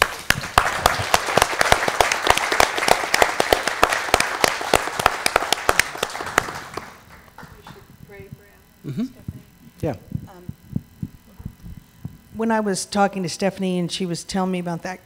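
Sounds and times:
crowd applauding: 0.0 - 7.9.

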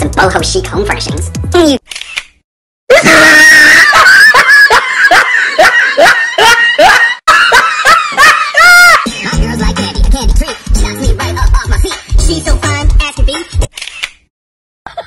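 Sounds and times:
cartoon shrieking laughter: 2.9 - 9.2.

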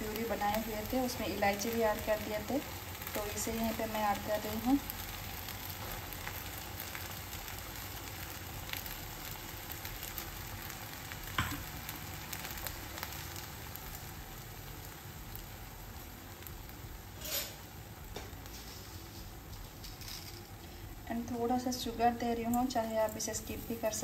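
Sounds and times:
faint crackles: 0.0 - 24.0
food sizzling in a pan: 0.0 - 24.0.

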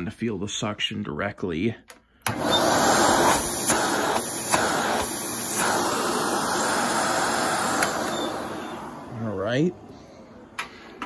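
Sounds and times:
vacuum cleaner running: 2.2 - 10.6.

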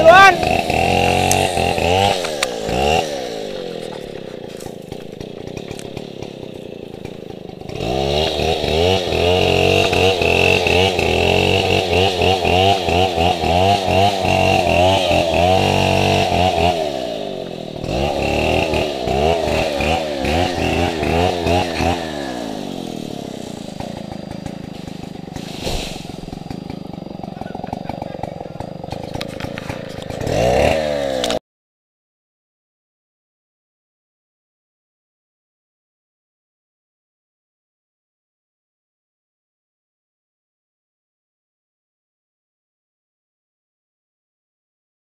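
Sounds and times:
chainsaw revving and idling: 0.0 - 31.4.

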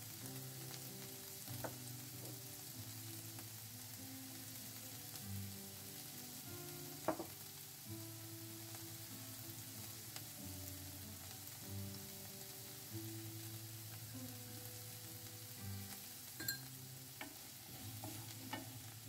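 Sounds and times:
onions sizzling in frying pan: 0.0 - 19.0
sharp clink: 16.4 - 16.7.

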